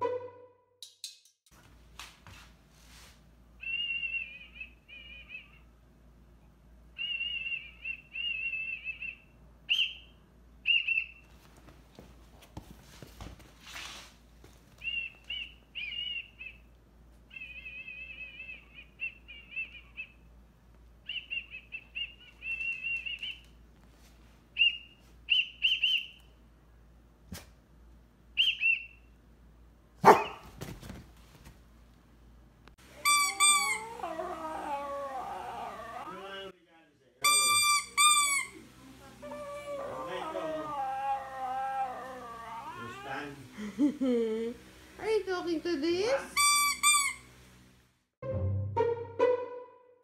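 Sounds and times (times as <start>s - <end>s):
whistle trilling: 7.0s - 10.1s, 37.3s - 38.6s, 46.4s - 47.3s
rustling: 11.2s - 15.3s.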